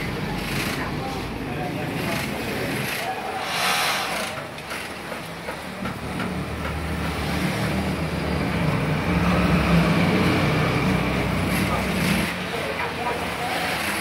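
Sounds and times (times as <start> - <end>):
sewing machines running: 0.0 - 5.5.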